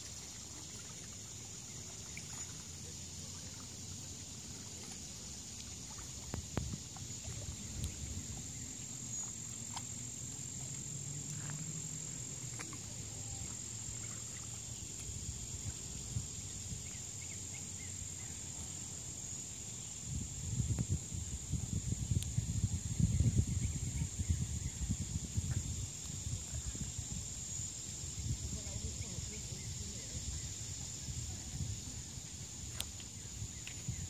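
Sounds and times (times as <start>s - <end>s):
faint ticks: 4.7s - 7.1s, 32.7s - 33.9s
low rumble on microphone: 19.9s - 34.0s.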